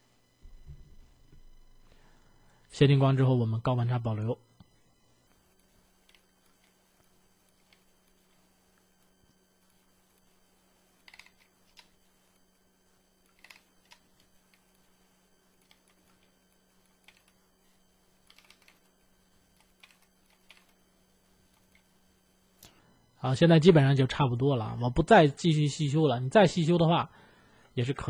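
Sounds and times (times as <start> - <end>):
faint steady hum: 0.0 - 28.0
keyboard and mouse clicks: 11.0 - 12.0, 13.3 - 14.6, 15.6 - 16.3, 17.0 - 17.4, 18.2 - 18.9, 19.6 - 20.8.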